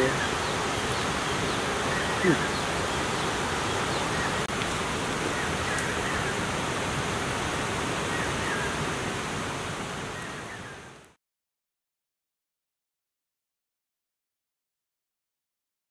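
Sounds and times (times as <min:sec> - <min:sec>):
rushing outdoor noise: 0:00.0 - 0:11.2.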